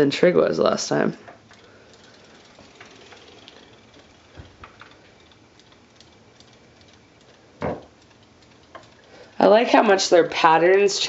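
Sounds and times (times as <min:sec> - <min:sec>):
robotic toy fish ticking: 0:01.5 - 0:10.1.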